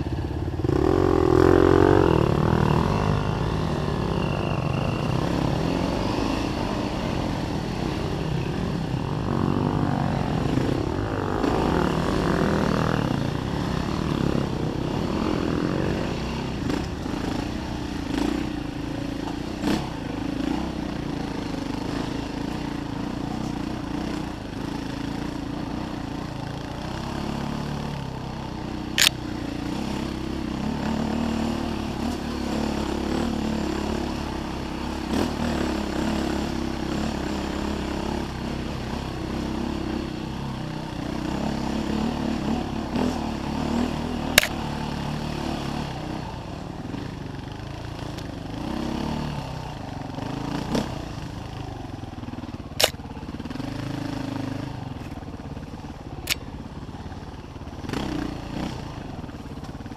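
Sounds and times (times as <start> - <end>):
dirt bike engine revving: 0.0 - 46.3, 52.6 - 54.8, 57.8 - 59.1.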